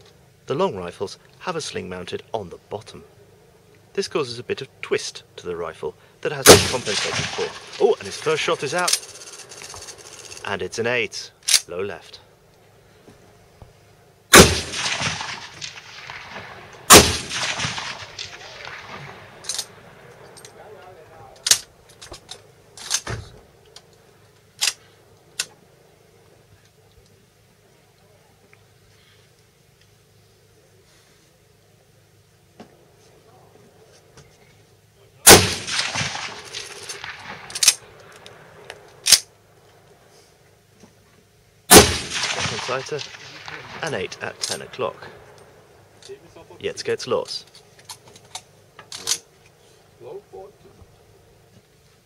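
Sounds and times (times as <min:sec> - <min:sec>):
sharp gunshots: 0:06.4 - 0:08.8, 0:14.3 - 0:19.9, 0:35.2 - 0:37.8, 0:41.7 - 0:45.4
rifle shots echoing: 0:06.4 - 0:10.4, 0:14.3 - 0:21.8, 0:35.2 - 0:39.3, 0:41.7 - 0:46.0.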